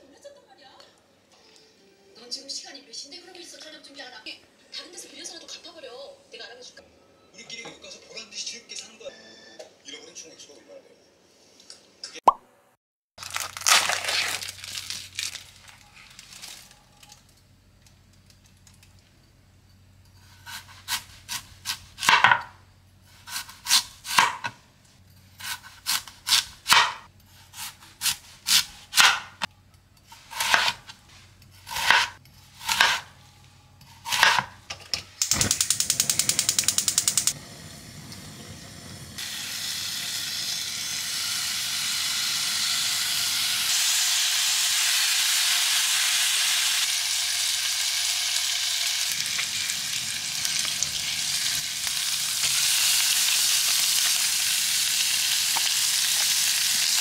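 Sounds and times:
knife chopping on cutting board: 0:20.5 - 0:22.5, 0:23.2 - 0:24.6, 0:25.4 - 0:29.4, 0:30.2 - 0:30.9, 0:31.6 - 0:33.1, 0:34.0 - 0:34.6
meat sizzling in a pot: 0:35.2 - 0:57.0.

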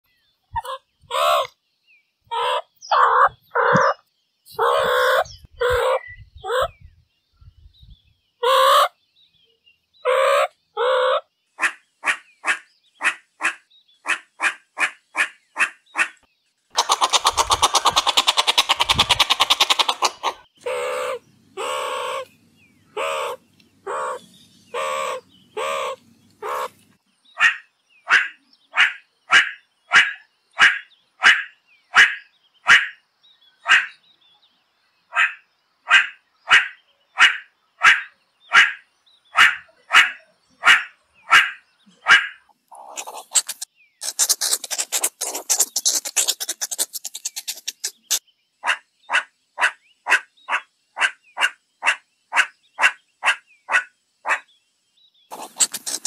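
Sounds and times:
meerkat calls: 0:00.6 - 0:01.5, 0:02.3 - 0:06.7, 0:08.4 - 0:08.9, 0:10.0 - 0:16.2, 0:16.8 - 0:22.3, 0:22.9 - 0:26.8, 0:27.4 - 0:33.0, 0:35.1 - 0:54.4, 0:55.3 - 0:56.0
meerkat rattling trill: 0:16.8 - 0:22.0, 0:42.1 - 0:51.5, 0:55.3 - 0:56.0
high chirps: 0:42.7 - 0:48.2, 0:55.3 - 0:56.0.

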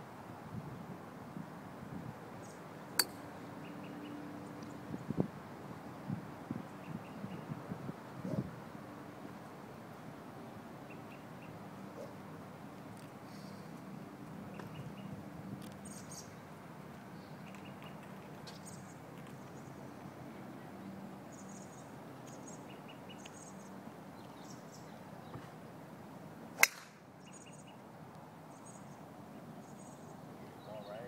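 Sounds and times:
golf club striking ball: 0:03.0 - 0:03.2, 0:26.6 - 0:27.0
birds chirping: 0:17.1 - 0:20.2, 0:29.6 - 0:31.0.

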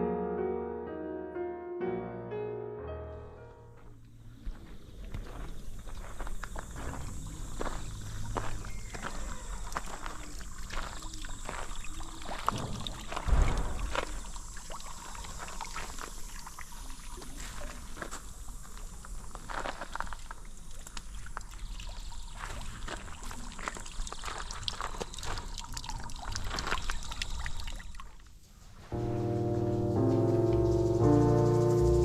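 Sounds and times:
water trickling from fountain: 0:05.5 - 0:28.3
low thump: 0:12.5 - 0:14.2.

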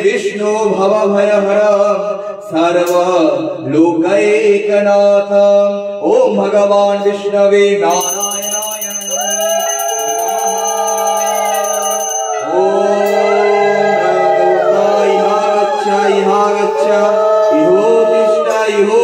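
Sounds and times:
man chanting into a microphone: 0:00.0 - 0:08.1, 0:15.0 - 0:19.0
hand bell ringing rapidly: 0:07.9 - 0:12.5.

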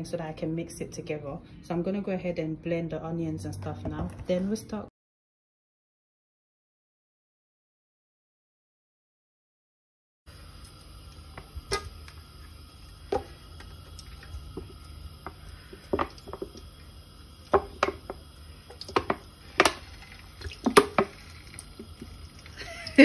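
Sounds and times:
low steady hum: 0:10.3 - 0:23.0.

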